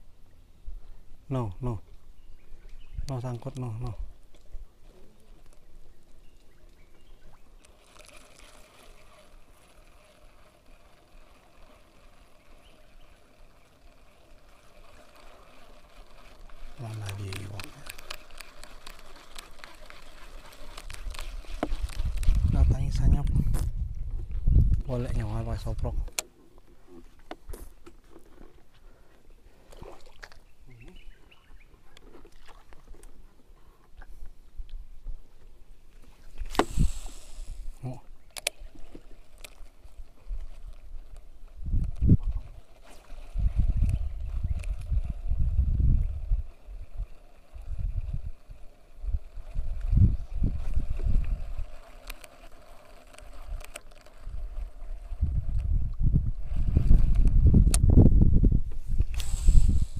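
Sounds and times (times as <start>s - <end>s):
bird chirping: 2.0s - 3.4s, 5.6s - 7.6s, 30.4s - 32.1s
fishing reel cranking: 7.5s - 23.4s, 36.3s - 55.8s, 59.0s - 59.9s
steady rushing hiss: 36.1s - 38.0s, 57.8s - 59.9s.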